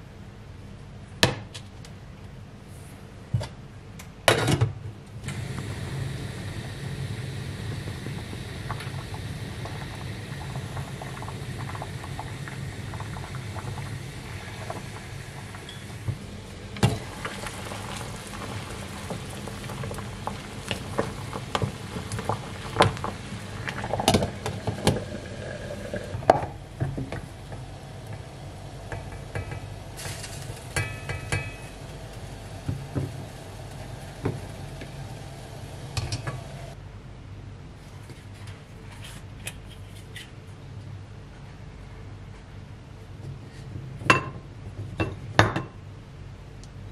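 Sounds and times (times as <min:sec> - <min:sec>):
water boiling hard: 0:05.2 - 0:36.8.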